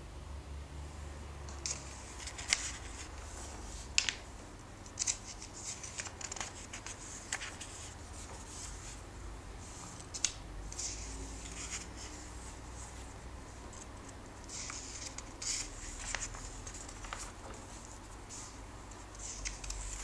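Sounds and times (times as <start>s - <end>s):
comic book pages turning: 1.6s - 4.2s, 5.0s - 9.0s, 14.5s - 18.6s.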